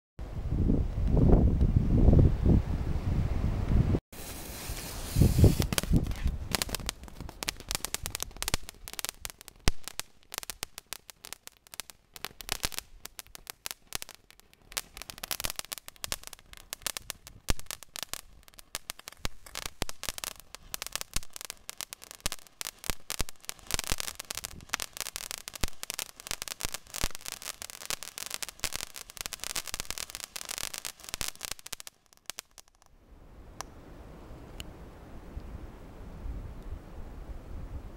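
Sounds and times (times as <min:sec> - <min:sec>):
firework hiss: 0:04.1 - 0:32.7
firework fountain crackling: 0:04.1 - 0:32.9.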